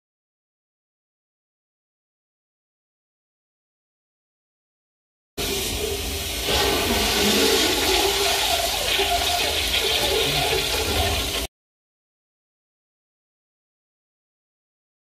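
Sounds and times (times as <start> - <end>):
toilet flushing: 5.4 - 11.5.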